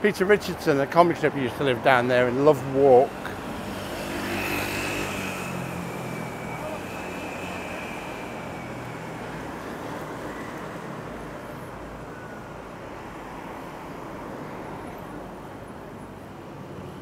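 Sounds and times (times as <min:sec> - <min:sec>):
street traffic noise: 0:00.0 - 0:17.0
passing vehicle engine hum: 0:02.2 - 0:12.3.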